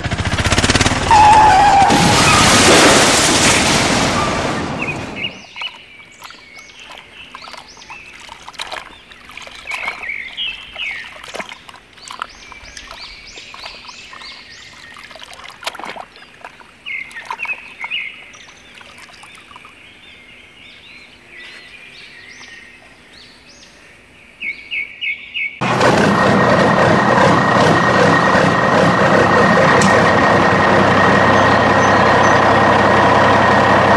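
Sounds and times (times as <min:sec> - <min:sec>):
muddy water splashing: 0:01.3 - 0:21.8
small birds chirping: 0:04.8 - 0:25.6
loud steady noise with whine: 0:25.6 - 0:33.9.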